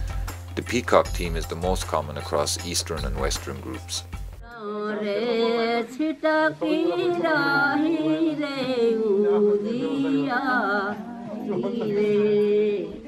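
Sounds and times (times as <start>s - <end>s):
woman singing chant-like melody: 4.4s - 13.0s.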